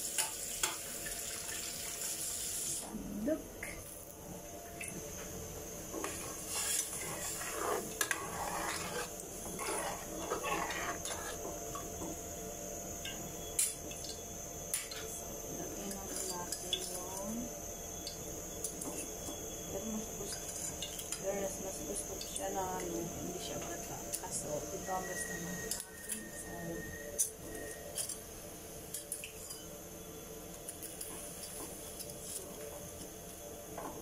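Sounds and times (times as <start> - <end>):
utensils clinking against pots: 25.0 - 28.2, 28.9 - 29.7.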